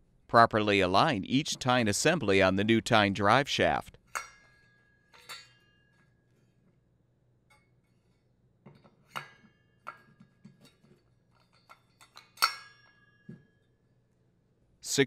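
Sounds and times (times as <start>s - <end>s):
metal tines clinking and ringing: 4.2s - 6.1s, 10.6s - 13.1s.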